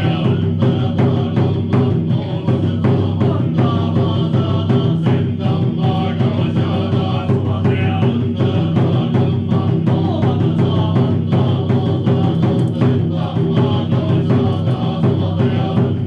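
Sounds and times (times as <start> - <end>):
droning chanting: 0.0 - 16.0
drum beaten in quick rhythm: 0.0 - 16.0.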